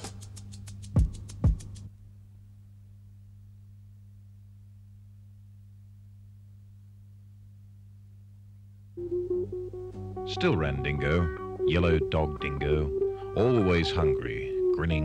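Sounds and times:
drum-led theme tune: 0.0s - 1.9s
low hum: 2.0s - 15.0s.

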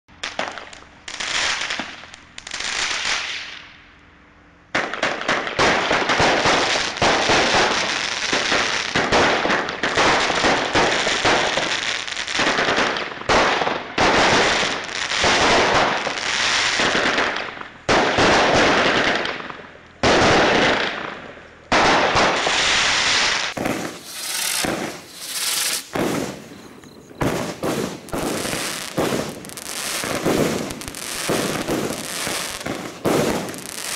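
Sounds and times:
fireworks firing in volleys: 0.1s - 3.7s, 4.7s - 33.9s.

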